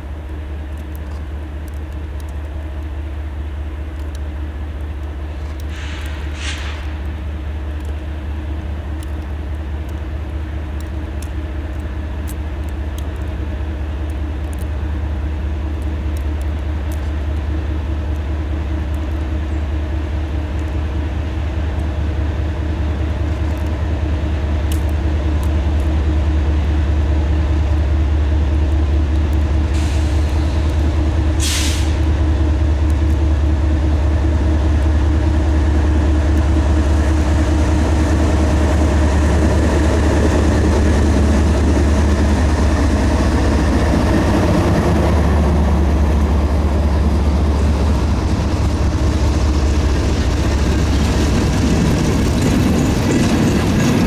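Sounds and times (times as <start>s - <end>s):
diesel locomotive engine drone: 0.0s - 54.0s
train wheels on rails: 0.0s - 54.0s
short sharp hiss: 5.7s - 7.0s, 31.4s - 32.0s.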